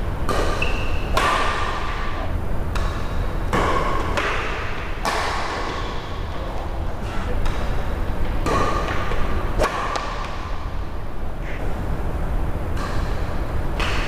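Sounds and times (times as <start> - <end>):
steady low hum: 0.0 - 14.0
racket hitting shuttlecock: 0.2 - 6.4, 7.4 - 10.8, 12.7 - 14.0.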